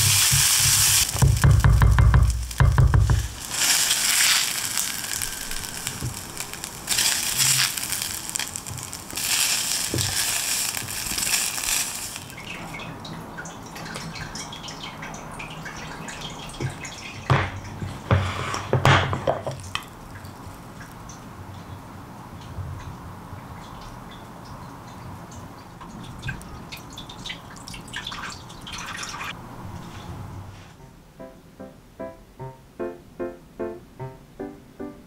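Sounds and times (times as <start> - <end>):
spatula scraping a frying pan: 17.9 - 19.5.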